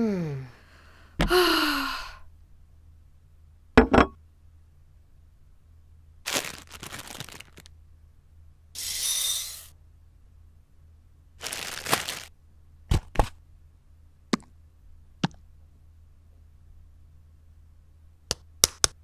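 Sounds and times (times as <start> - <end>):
plastic packet crackling: 6.3 - 7.7, 11.4 - 12.3
short hiss: 8.8 - 9.7.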